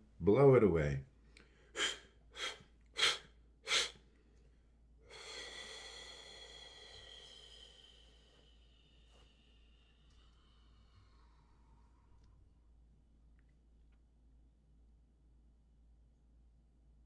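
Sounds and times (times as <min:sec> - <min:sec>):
man blowing breath out: 0:01.6 - 0:04.0, 0:05.0 - 0:12.0.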